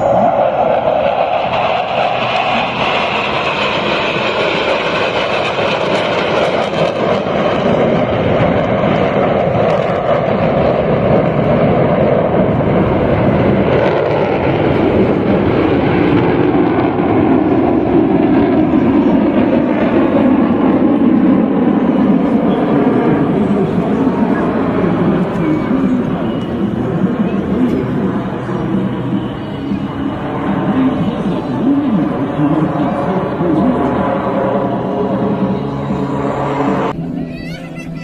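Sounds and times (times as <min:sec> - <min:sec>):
jet engines roaring overhead: 0:00.0 - 0:38.0.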